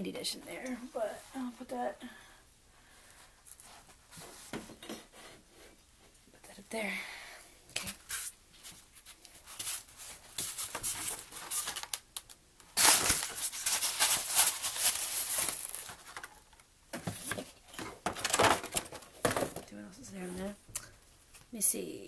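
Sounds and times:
packaging crinkling and tearing: 10.4s - 16.4s
paper rustling: 12.8s - 16.4s.

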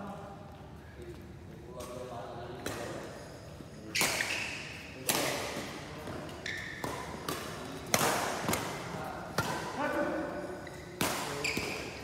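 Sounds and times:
shoes squeaking on court: 2.7s - 4.9s, 5.6s - 7.7s, 10.3s - 12.0s
rackets smacking shuttlecock: 3.8s - 10.0s, 10.7s - 12.0s.

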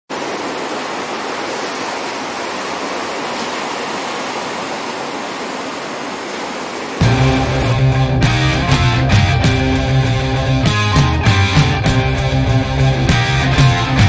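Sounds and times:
ocean surf breaking: 0.1s - 10.0s.

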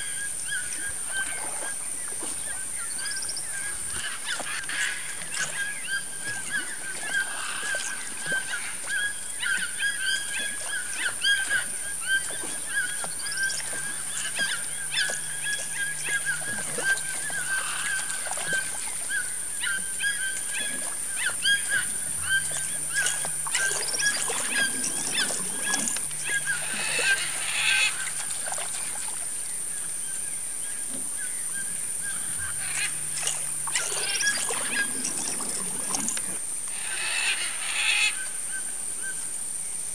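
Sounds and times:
animals honking: 21.8s - 28.2s.

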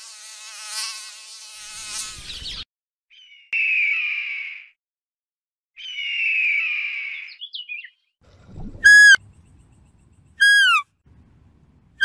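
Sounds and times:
deer whistled calls: 10.4s - 10.8s.

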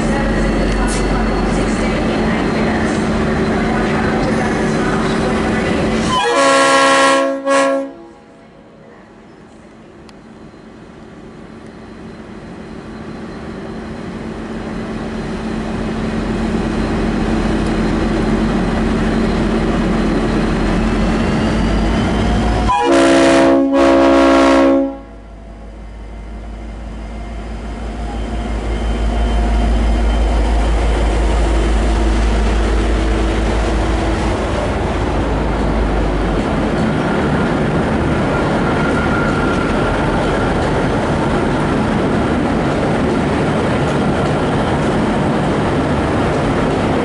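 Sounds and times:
diesel locomotive engine: 0.0s - 47.0s
locomotive horn blasts: 6.0s - 8.2s, 22.7s - 25.2s.

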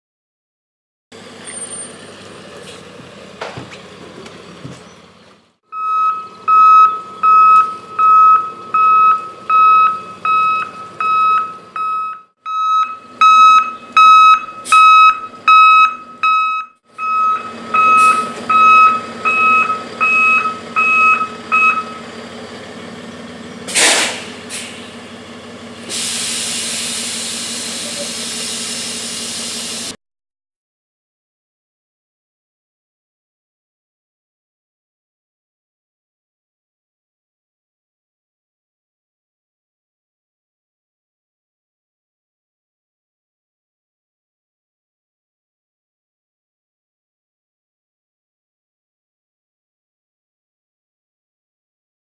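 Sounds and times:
truck engine running: 1.1s - 30.0s
backup alarm beeping: 5.7s - 22.0s
air brake burst: 17.9s - 18.4s, 23.7s - 25.0s, 25.8s - 30.0s.

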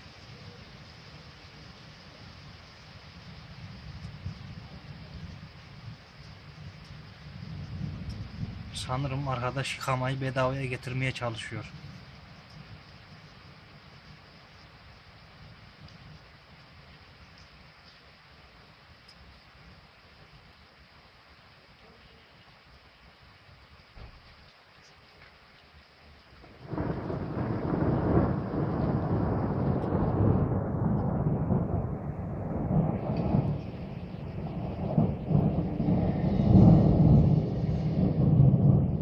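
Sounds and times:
rain falling on street: 0.0s - 39.0s
low rumble: 26.7s - 39.0s.

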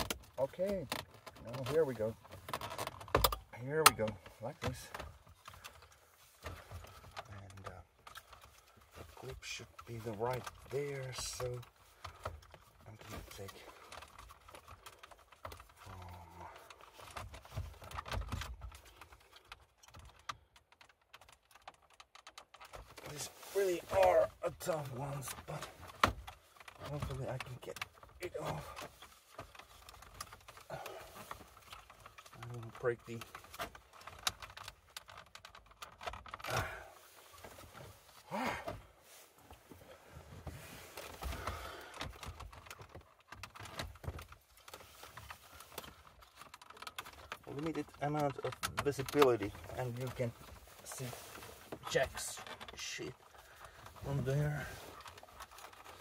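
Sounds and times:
plastic trim clicks and rattles: 0.0s - 15.9s, 41.0s - 51.1s
plastic trim creaks: 0.0s - 23.2s, 40.3s - 56.0s.

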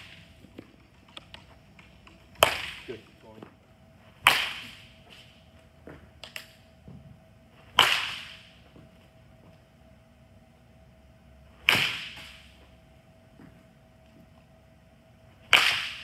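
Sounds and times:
baseball bat cracking balls: 0.0s - 9.7s, 11.5s - 14.6s, 15.3s - 16.0s.

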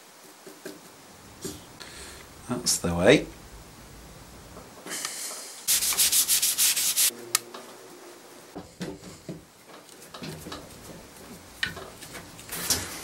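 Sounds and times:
sandpaper rubbing on wood: 5.7s - 7.1s.

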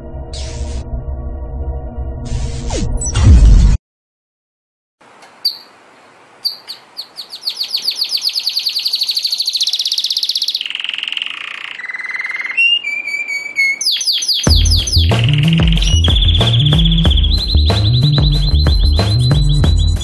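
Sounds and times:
canary singing: 5.2s - 5.8s, 6.4s - 20.0s.

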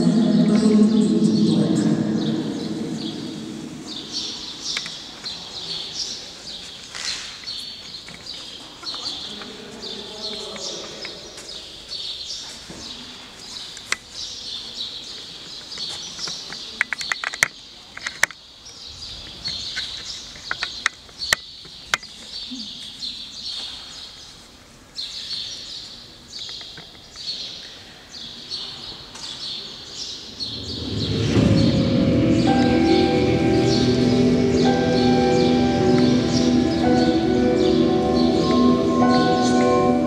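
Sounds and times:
music with bell-like tones: 30.6s - 40.0s.

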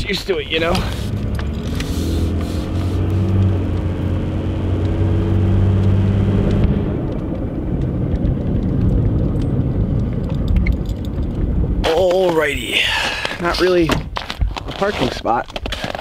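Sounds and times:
truck engine hum: 0.0s - 13.0s
road noise: 0.0s - 16.0s.

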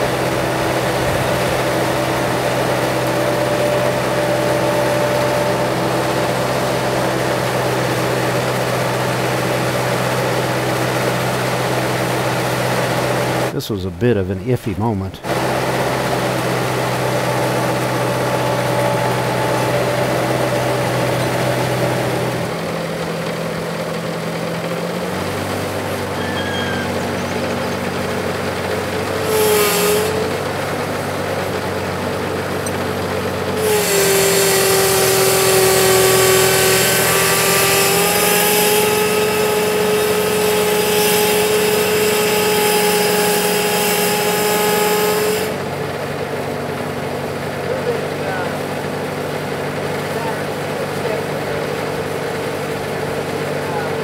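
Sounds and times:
steady whine: 0.0s - 42.6s
diesel engine running: 0.0s - 54.0s.

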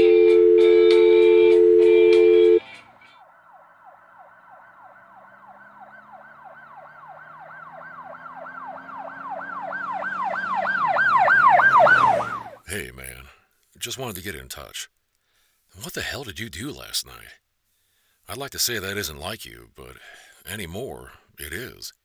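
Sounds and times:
guitar music: 0.0s - 3.2s
emergency siren yelping: 0.0s - 12.6s.

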